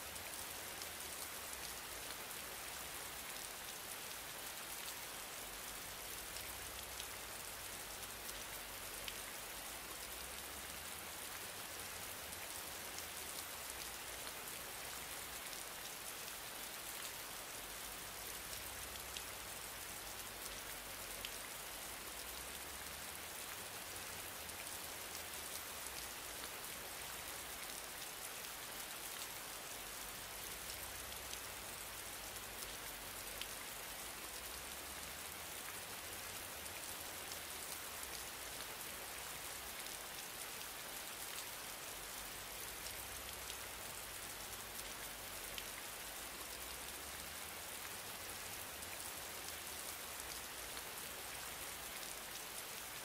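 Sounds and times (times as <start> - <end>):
steady rain-like hiss: 0.0 - 53.0.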